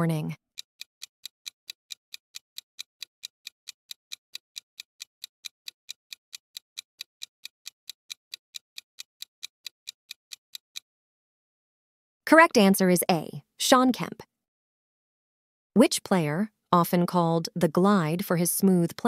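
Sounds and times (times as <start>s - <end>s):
clock ticking: 0.0s - 10.9s.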